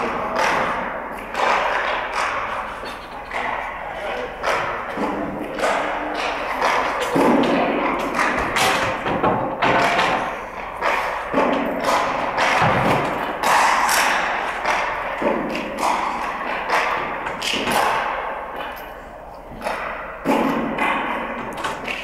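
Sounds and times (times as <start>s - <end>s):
hockey sticks knocking pucks on ice: 0.0s - 18.9s, 19.5s - 22.0s.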